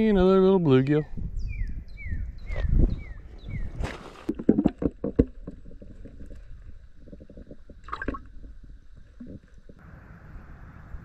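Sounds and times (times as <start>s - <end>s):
creek water splashing and gurgling: 3.7s - 9.8s.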